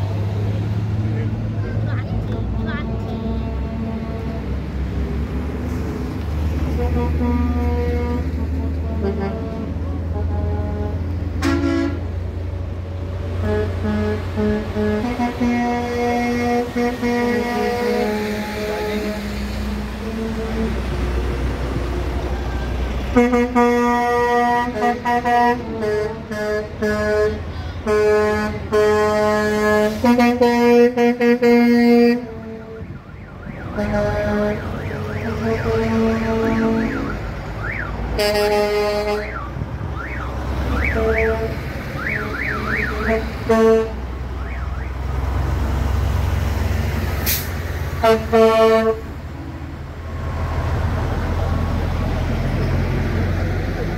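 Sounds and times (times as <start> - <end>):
diesel truck engines rumbling: 0.0 - 53.9
truck air horn blasts: 2.4 - 4.6, 6.6 - 12.2, 13.3 - 21.1, 23.0 - 33.0, 33.6 - 39.5, 40.2 - 44.6, 47.2 - 49.3.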